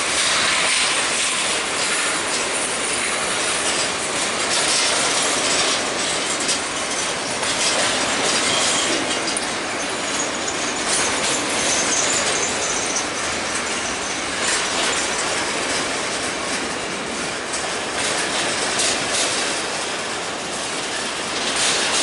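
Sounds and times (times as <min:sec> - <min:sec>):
train wheels clattering over rail joints: 0:00.0 - 0:22.0
high wheel squeal: 0:04.6 - 0:15.7.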